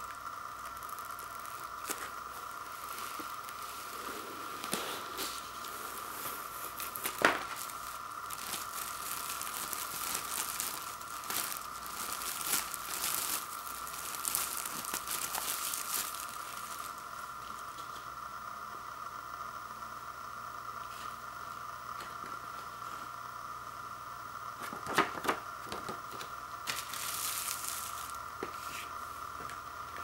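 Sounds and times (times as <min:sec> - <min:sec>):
plastic shrink wrap crinkling: 0:00.0 - 0:18.1, 0:24.6 - 0:30.0
sharp plastic crack: 0:06.8 - 0:13.4.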